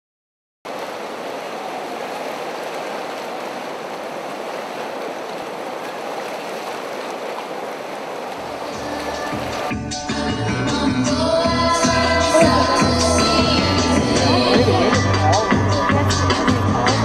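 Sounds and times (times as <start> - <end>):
waves lapping on pebble shore: 0.7 - 9.7.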